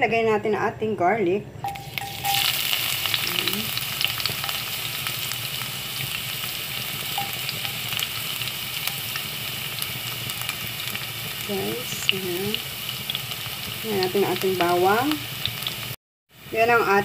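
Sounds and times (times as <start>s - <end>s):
garlic sizzling in oil: 1.6s - 17.0s
oil popping: 1.7s - 11.4s.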